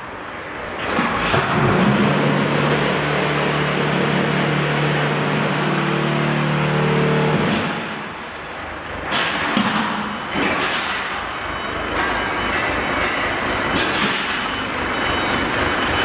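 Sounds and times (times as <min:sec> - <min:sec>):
forklift engine revving: 0:01.2 - 0:08.1
metallic clanks and knocks: 0:11.9 - 0:14.6.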